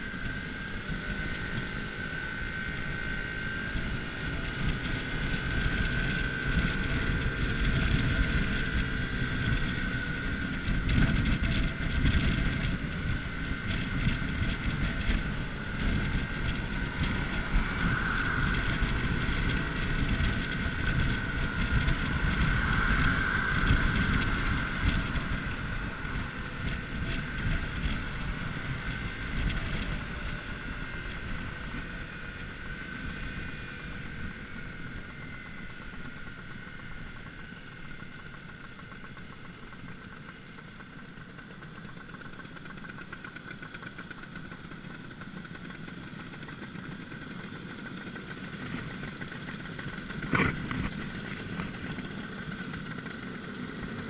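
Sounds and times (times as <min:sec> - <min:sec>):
wind rushing over microphone: 0:00.0 - 0:38.3
scooter engine running: 0:00.0 - 0:54.0.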